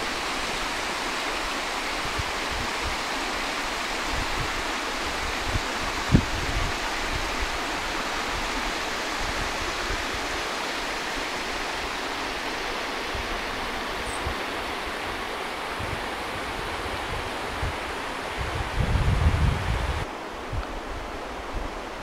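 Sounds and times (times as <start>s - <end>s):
stream flowing: 0.0s - 22.0s.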